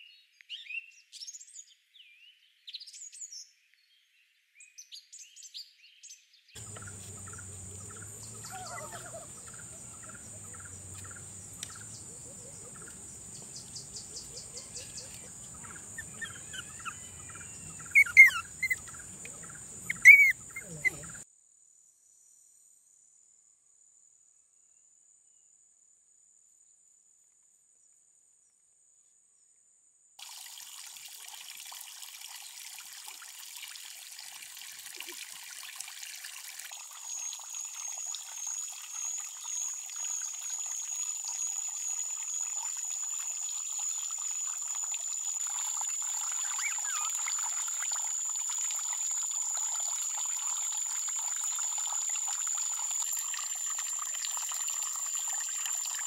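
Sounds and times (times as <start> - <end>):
water running and trickling: 6.6 - 21.2, 30.2 - 56.0.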